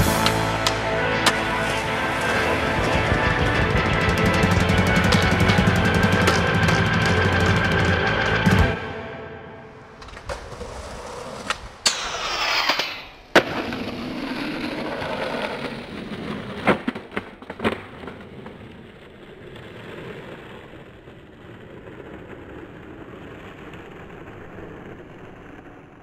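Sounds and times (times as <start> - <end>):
skateboard clacks and slaps: 0.0 - 8.8, 9.9 - 18.7
skateboard wheels rolling on asphalt: 0.0 - 8.8, 9.7 - 26.0.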